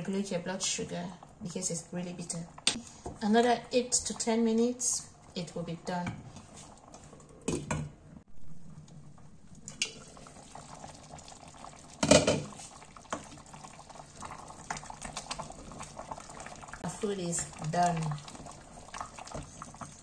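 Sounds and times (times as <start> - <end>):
porridge bubbling in a pot: 8.2 - 20.0
lid and utensil knocking on pot: 12.0 - 12.5.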